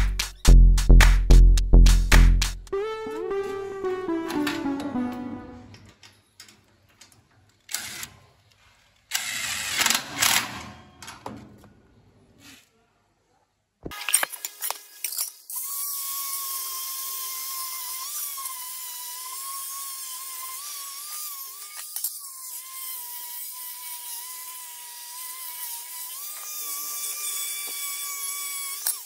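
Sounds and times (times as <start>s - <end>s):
angle grinder sanding metal: 15.7s - 29.0s.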